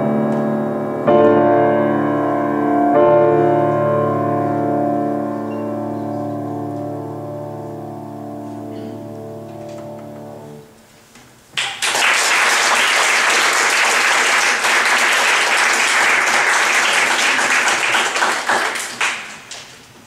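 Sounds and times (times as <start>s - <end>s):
grand piano chord: 0.0s - 10.8s
audience applause: 11.6s - 19.7s.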